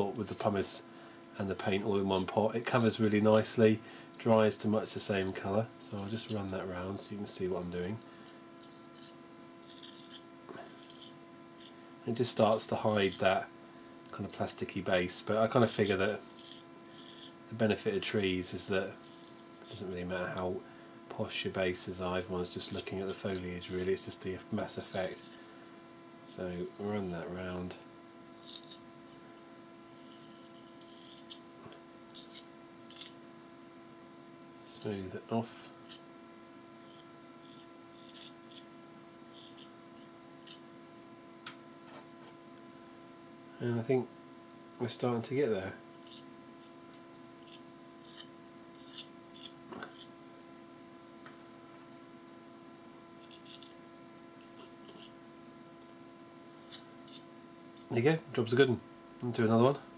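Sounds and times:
faint steady hum: 0.0 - 59.9
metal spatula scratching paint: 8.6 - 11.8, 12.5 - 13.4, 15.7 - 17.4, 18.6 - 20.2, 28.3 - 29.2, 29.9 - 31.4, 32.1 - 33.2, 36.8 - 38.7, 39.3 - 40.6, 46.0 - 46.7, 47.4 - 50.1, 53.2 - 53.8, 54.4 - 55.2, 56.6 - 57.9
spatula scraping paint: 8.6 - 11.8, 16.3 - 17.3, 19.0 - 19.9, 28.4 - 29.2, 36.8 - 38.6, 53.2 - 53.8, 54.4 - 55.2.

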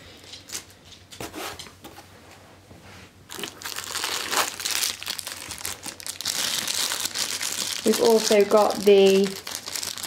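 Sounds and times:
plastic bag crinkling: 3.3 - 10.0.

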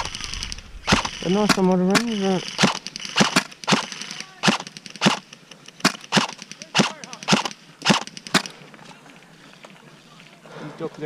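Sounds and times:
airsoft rifle shots: 0.0 - 8.6.

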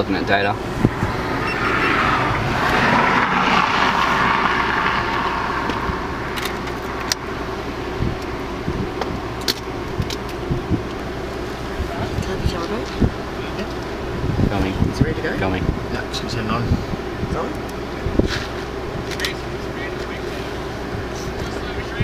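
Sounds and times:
low engine hum: 0.0 - 22.0
motor vehicle passing: 0.3 - 9.3.

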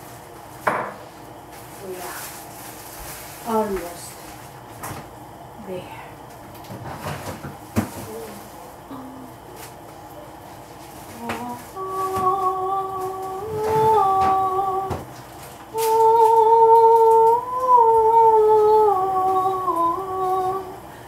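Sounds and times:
woman humming: 8.0 - 9.6, 11.1 - 15.0, 15.7 - 20.9.

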